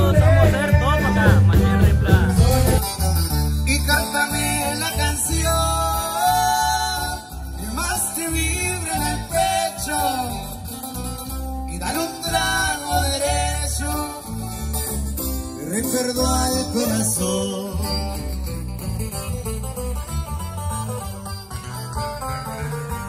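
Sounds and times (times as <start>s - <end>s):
person singing: 0.0s - 10.7s, 11.7s - 14.5s
electric bass line: 0.0s - 23.0s
strummed acoustic guitars: 0.0s - 23.0s.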